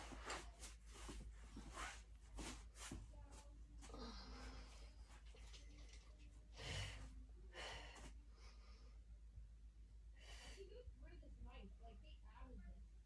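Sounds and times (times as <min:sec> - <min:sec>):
low steady hum: 0:00.0 - 0:13.0
woman breathing with effort: 0:06.5 - 0:09.2.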